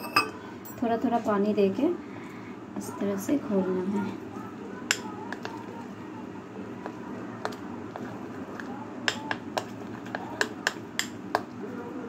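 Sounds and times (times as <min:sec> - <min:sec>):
spoon clinking against glass bowl: 0:00.0 - 0:00.8.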